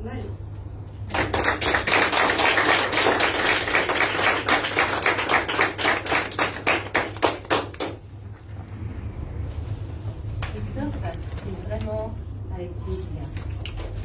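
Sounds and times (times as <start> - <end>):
small audience applauding: 1.1 - 8.1.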